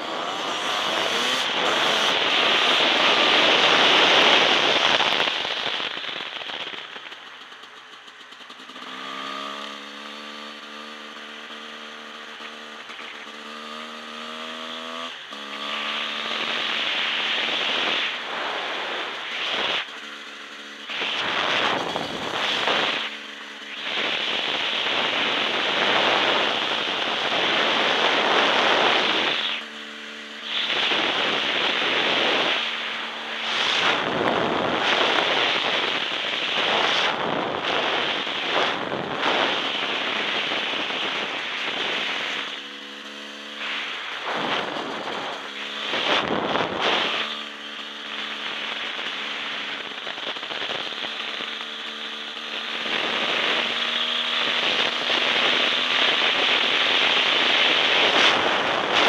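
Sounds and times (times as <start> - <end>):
motorcycle engine revving: 0.0 - 59.0
wind rushing over microphone: 20.9 - 23.2, 23.8 - 42.8, 43.5 - 47.5, 52.7 - 59.0.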